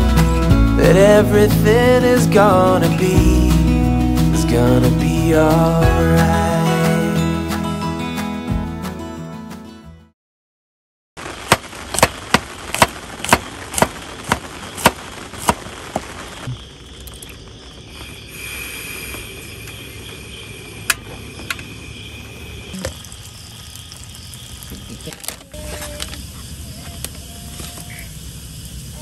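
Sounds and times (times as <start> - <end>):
gas flame hissing: 17.9 - 29.0.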